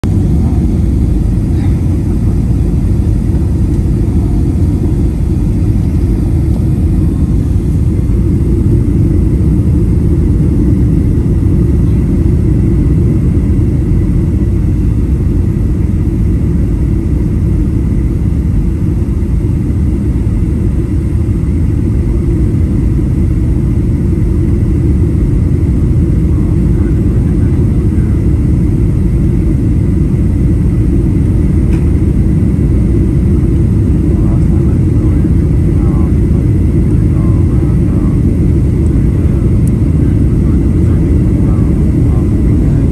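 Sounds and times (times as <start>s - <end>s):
airplane cabin engine roar: 0.0s - 42.9s.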